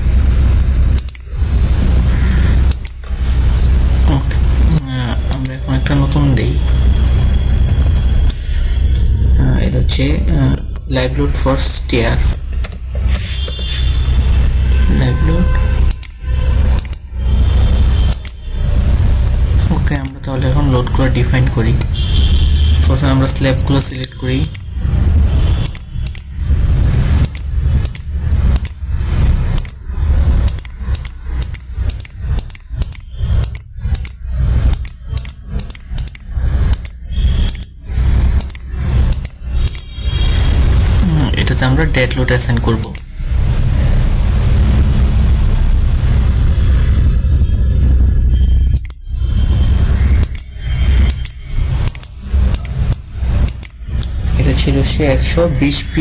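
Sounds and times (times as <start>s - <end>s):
low pulsing rumble: 0.0s - 56.0s
computer mouse clicking: 1.0s - 1.3s, 2.7s - 3.1s, 7.0s - 8.4s, 12.3s - 14.2s, 15.9s - 16.2s, 16.8s - 17.0s, 18.1s - 18.4s, 19.1s - 19.4s, 20.0s - 20.2s, 25.6s - 26.3s, 27.2s - 29.8s, 30.4s - 37.8s, 38.4s - 39.9s, 48.8s - 49.0s, 50.2s - 50.5s, 51.1s - 54.2s.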